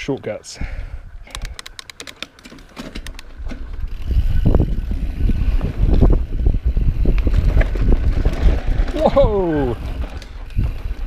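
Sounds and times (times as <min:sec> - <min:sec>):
bike sharp clicks: 0:01.2 - 0:11.0
tyres rolling on dirt: 0:02.0 - 0:11.0
wind rushing: 0:03.8 - 0:11.0.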